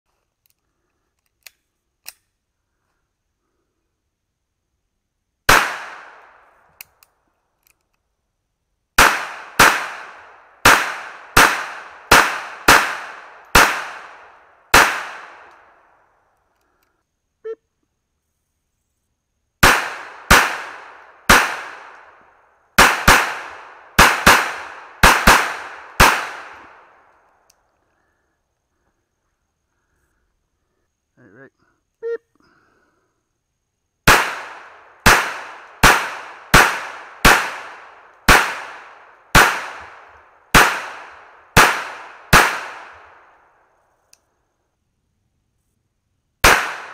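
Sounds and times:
gun handling clicks: 0.2s - 2.4s, 6.7s - 8.1s, 16.4s - 17.0s
pistol shots cracking: 5.5s - 6.5s, 9.0s - 15.8s, 19.6s - 22.2s, 22.8s - 27.1s, 34.0s - 43.3s, 46.4s - 46.9s.

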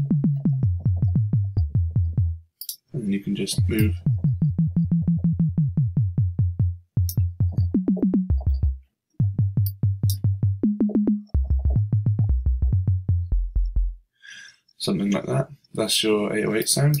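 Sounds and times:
synth sub bass stabs: 0.0s - 2.4s, 3.6s - 14.0s.

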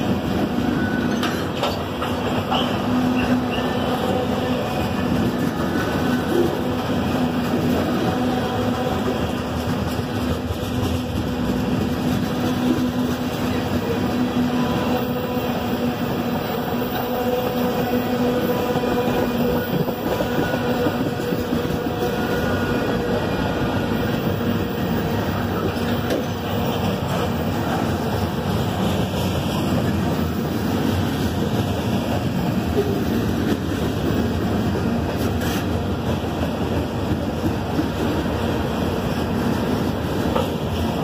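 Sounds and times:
train wheels rumbling on rails: 0.0s - 41.0s.

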